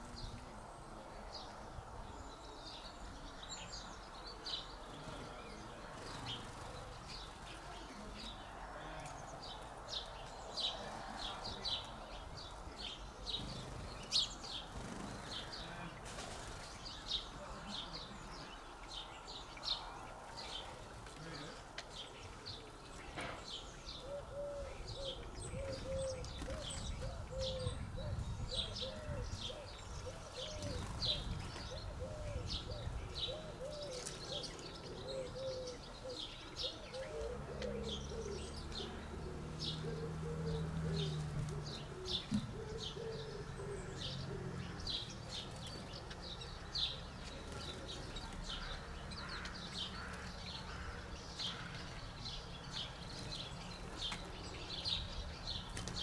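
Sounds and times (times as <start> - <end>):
small birds chirping: 0.0 - 56.0
pigeon cooing: 24.0 - 45.2.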